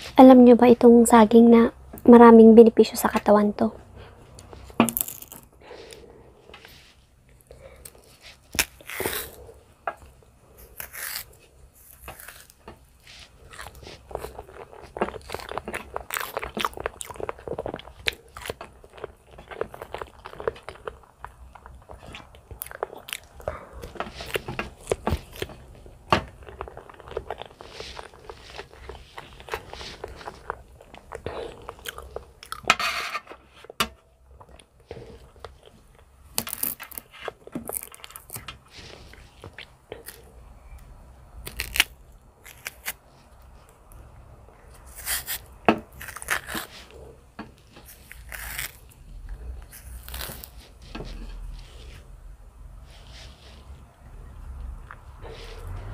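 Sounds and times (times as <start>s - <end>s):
person chewing banana: 4.4s - 32.7s, 34.3s - 52.2s, 53.6s - 55.9s.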